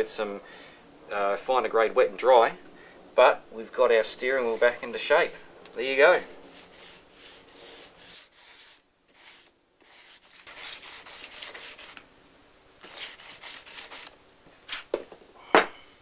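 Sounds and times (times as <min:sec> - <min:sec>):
sanding block rasping: 0:04.2 - 0:05.4, 0:06.5 - 0:12.0, 0:12.8 - 0:14.1.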